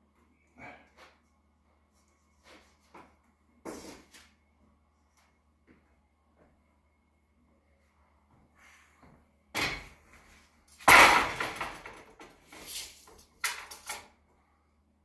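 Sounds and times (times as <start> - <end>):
board clattering thud: 10.8 - 12.3.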